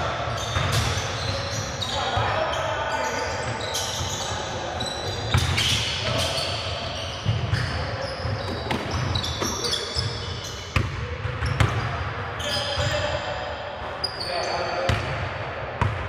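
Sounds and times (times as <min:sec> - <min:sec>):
sneakers squeaking: 0:00.0 - 0:15.2.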